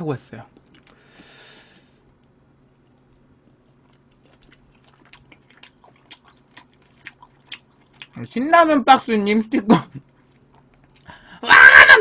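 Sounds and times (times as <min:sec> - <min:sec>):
wet chewing mouth sounds: 0:02.6 - 0:08.3, 0:10.0 - 0:11.1.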